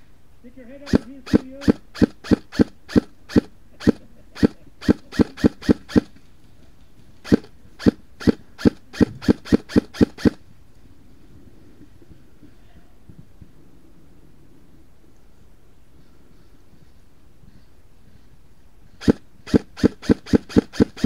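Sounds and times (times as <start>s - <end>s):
airsoft rifle shots: 0.8s - 6.2s, 7.2s - 10.4s, 19.0s - 21.0s.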